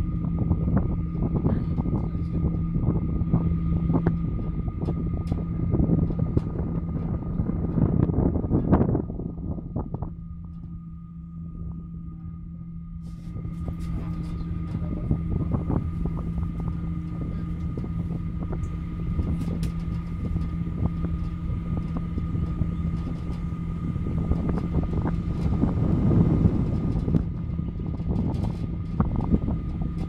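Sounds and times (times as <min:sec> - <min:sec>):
cable car mechanical hum: 0:00.0 - 0:30.0
high whine: 0:00.0 - 0:30.0
light clicks and rattles: 0:13.2 - 0:25.8, 0:26.5 - 0:30.0.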